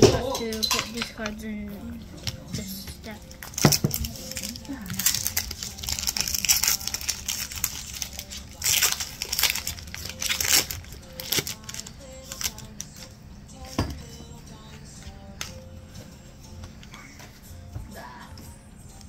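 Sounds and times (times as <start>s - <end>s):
faint background music: 0.0s - 19.0s
card handling: 2.2s - 13.2s
foil wrapper crinkling: 3.2s - 13.2s.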